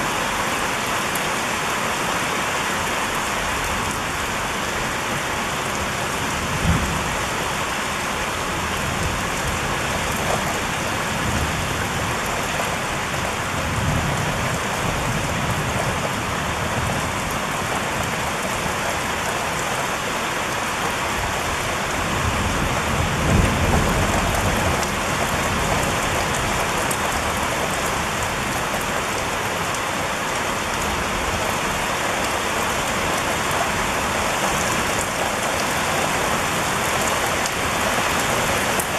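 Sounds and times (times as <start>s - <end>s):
steady rain falling: 0.0s - 38.9s
thunder rumbling: 6.5s - 7.2s, 22.2s - 26.1s.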